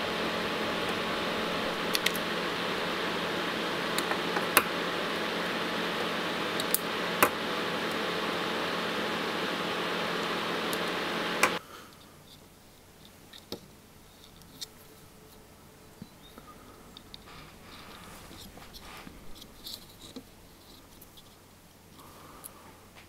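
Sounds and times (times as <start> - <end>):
steady mechanical hum: 0.0 - 23.0.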